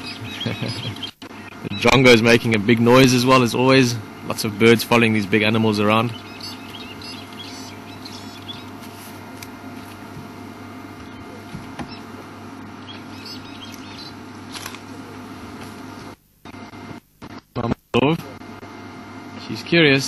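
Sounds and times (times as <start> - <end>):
bird calling in chirpy phrases: 0.0 - 3.6, 4.5 - 8.8, 11.0 - 15.4
steady low hum: 0.0 - 20.0.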